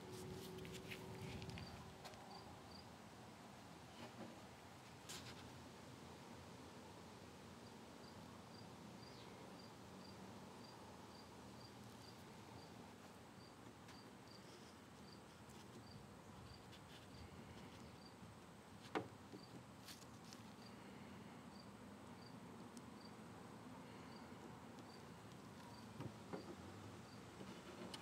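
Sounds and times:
cricket chirping: 1.6 - 2.9, 13.4 - 14.4, 15.8 - 18.2, 21.5 - 22.4, 23.9 - 26.5.

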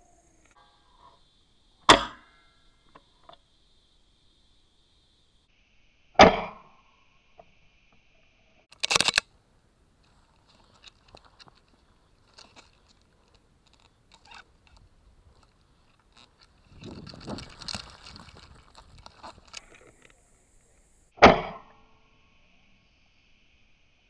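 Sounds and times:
clicks and rustling: 8.7 - 9.3, 10.0 - 20.9.

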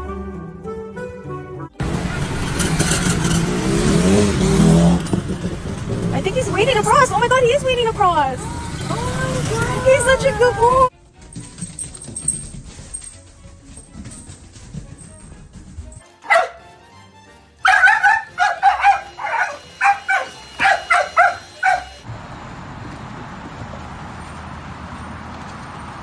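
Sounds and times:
dog yelping: 8.4 - 10.9, 16.3 - 16.6, 17.6 - 22.0
dog barking high-pitched: 16.2 - 16.6, 17.6 - 22.0.

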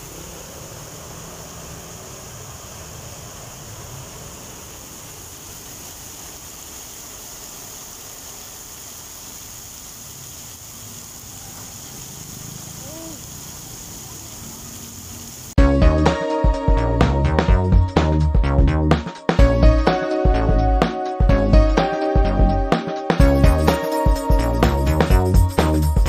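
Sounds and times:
low rumble of traffic: 0.0 - 9.1, 9.8 - 15.6
heavy rain on wet road: 0.0 - 15.6.

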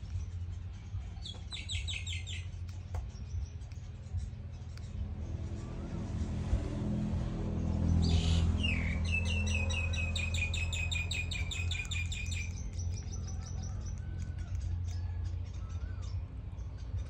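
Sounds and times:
bird chirping trill: 0.0 - 6.5, 7.3 - 17.0
steady low hum: 0.0 - 17.0.

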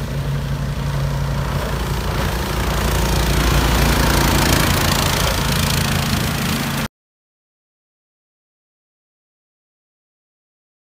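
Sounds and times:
boat motor running: 0.0 - 6.9
propeller wash and spray rushing: 0.0 - 6.9.

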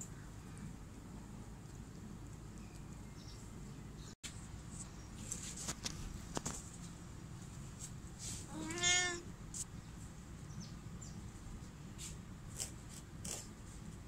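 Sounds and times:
kitten meowing: 8.5 - 9.2.

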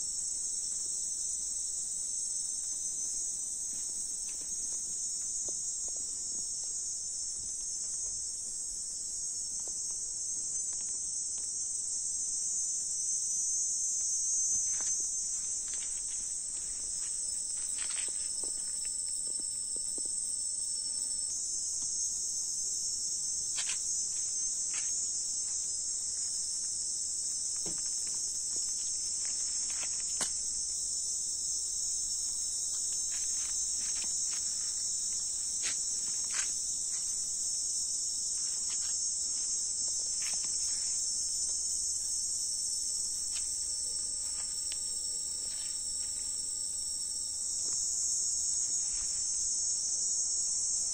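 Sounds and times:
insects chorus: 0.0 - 50.9.

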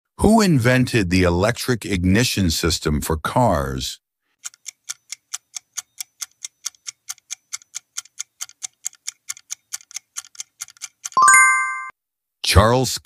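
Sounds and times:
clock ticking quickly: 4.4 - 11.2.

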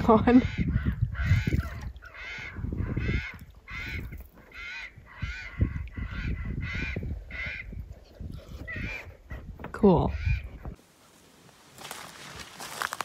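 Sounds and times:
crows cawing: 0.4 - 7.8.

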